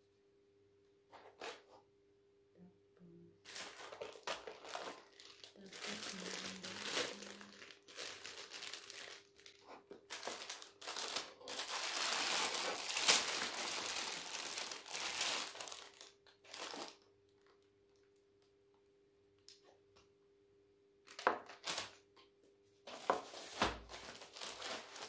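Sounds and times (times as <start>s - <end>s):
plastic packaging crinkling: 3.4s - 17.7s, 21.0s - 22.0s, 22.9s - 25.0s.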